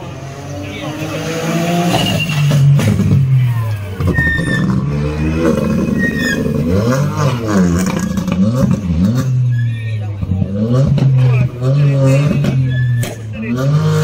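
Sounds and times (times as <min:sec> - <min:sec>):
rally car engine revving: 0:00.0 - 0:14.0.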